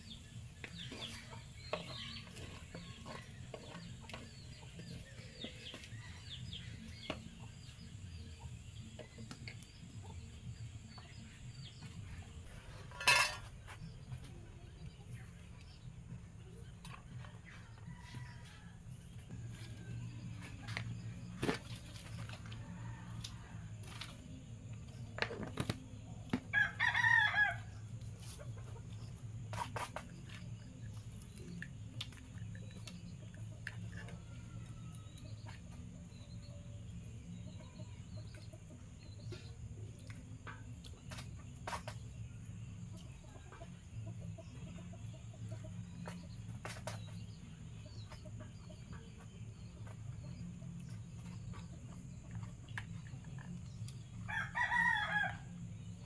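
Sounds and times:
chicken crowing: 54.3s - 55.5s.

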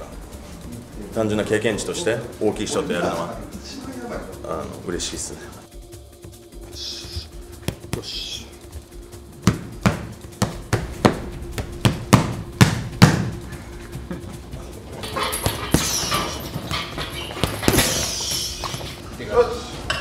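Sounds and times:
chains jangling: 14.6s - 19.1s.

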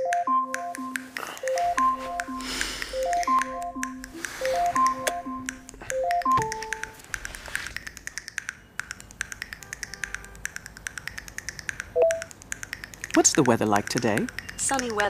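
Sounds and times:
background music: 0.0s - 7.0s
quick clicking rhythm: 0.0s - 7.1s, 7.7s - 15.0s
tablet alarm beeping melody: 0.0s - 7.8s, 12.0s - 12.3s.

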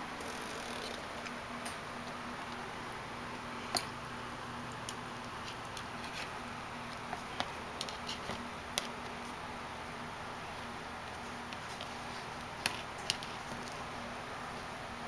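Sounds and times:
steady room hiss: 0.0s - 15.0s
kitten claws scratching a box: 5.5s - 9.1s.

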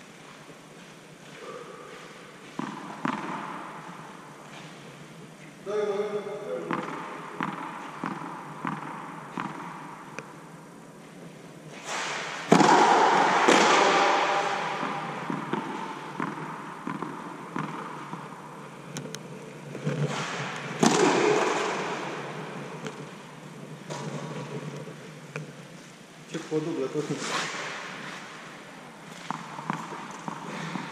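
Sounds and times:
racket striking ball with echo: 1.4s - 4.4s, 6.5s - 10.6s, 11.7s - 18.7s, 19.6s - 24.5s, 29.1s - 30.9s
tennis ball bouncing on clay: 2.6s - 3.7s, 6.7s - 10.2s, 12.5s - 18.4s, 19.7s - 23.1s.

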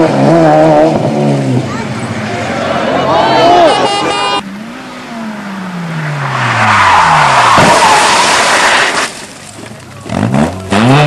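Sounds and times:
rally car engine decelerating: 0.0s - 7.7s
tyres squealing and skidding: 1.7s - 9.5s.

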